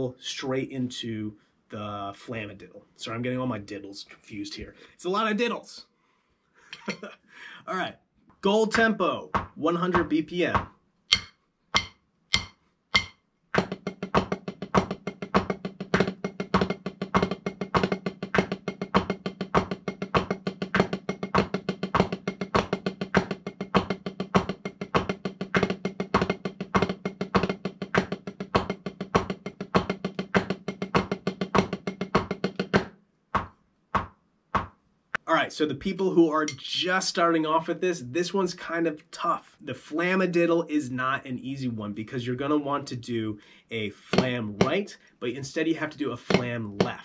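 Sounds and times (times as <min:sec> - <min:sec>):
drumsticks on practice pad: 0:09.8 - 0:33.5, 0:36.4 - 0:36.7.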